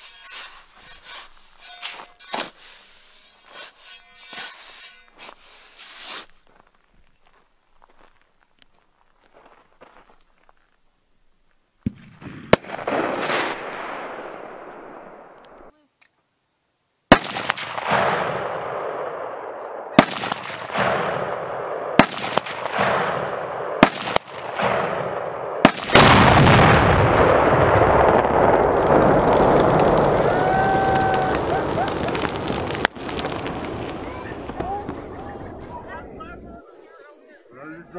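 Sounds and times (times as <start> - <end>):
explosive bangs with echo: 17.1 - 30.2.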